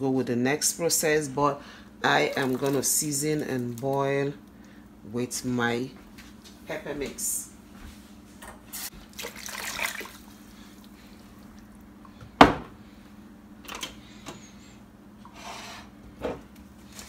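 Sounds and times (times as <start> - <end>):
liquid pouring and splashing: 2.2 - 3.0, 8.9 - 11.7.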